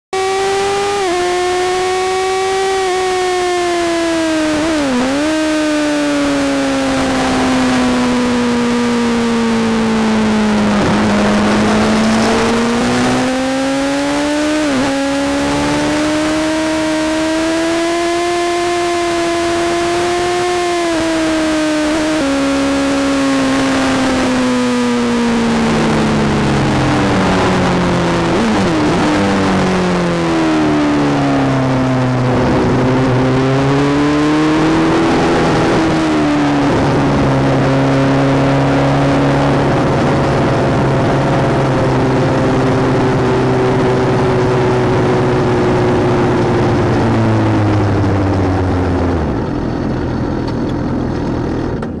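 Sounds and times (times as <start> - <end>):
motorcycle engine: 0.0 - 52.0
wind rush: 6.9 - 14.9, 25.2 - 50.2.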